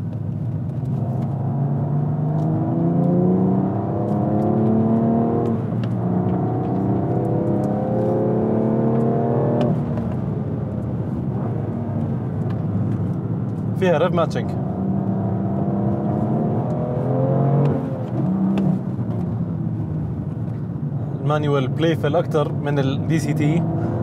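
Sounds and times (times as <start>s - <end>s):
car engine accelerating hard: 0.8s - 13.3s, 14.5s - 20.2s, 22.5s - 24.0s.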